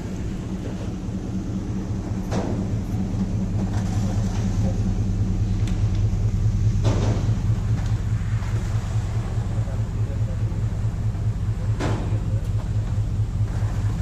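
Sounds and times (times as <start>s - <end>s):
vehicle engine idling: 0.0s - 14.0s.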